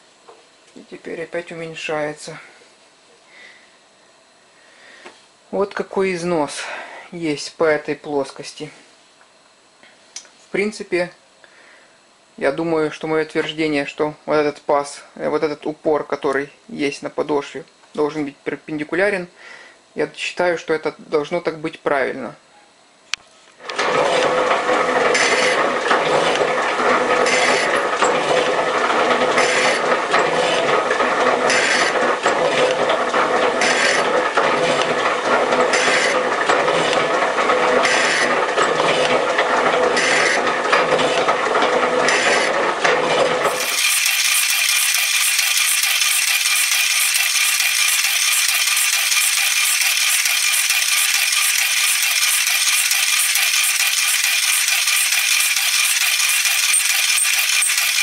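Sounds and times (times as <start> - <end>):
mechanical clatter: 43.4 - 58.0
metal shaper running: 43.4 - 58.0.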